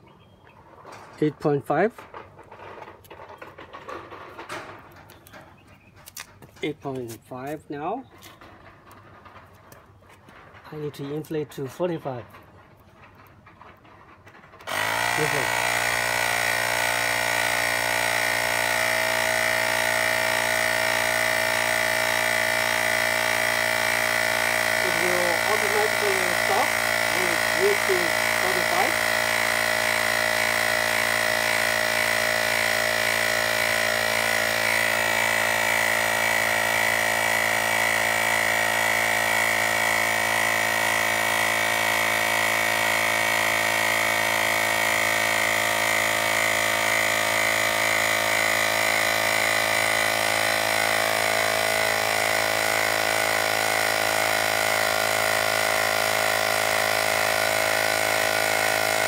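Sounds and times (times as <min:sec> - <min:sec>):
small electric compressor running: 0:13.0 - 0:59.0.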